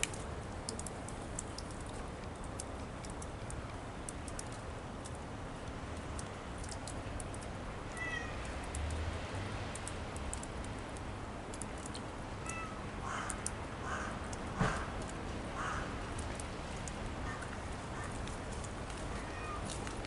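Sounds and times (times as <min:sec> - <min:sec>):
cat meowing: 0:07.9 - 0:08.4, 0:12.4 - 0:12.8, 0:19.1 - 0:19.7
faint high ticks: 0:09.7 - 0:12.6, 0:13.2 - 0:13.6.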